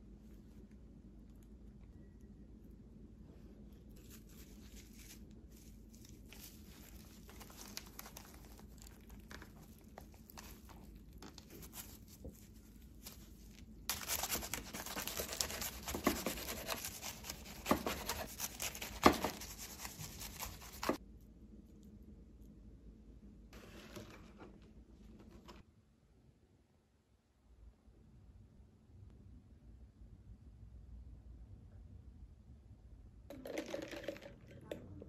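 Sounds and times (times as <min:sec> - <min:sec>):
rustling of leaves and seaweed: 0:03.9 - 0:21.0
knife slicing crisp roll: 0:09.5 - 0:21.0.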